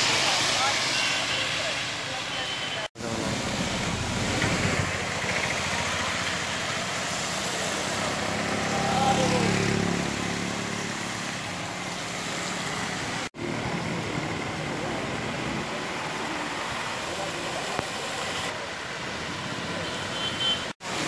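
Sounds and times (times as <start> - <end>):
rain hiss: 0.0 - 19.8
tyres swishing on wet road: 0.0 - 21.0
vehicle engine passing: 3.1 - 17.3.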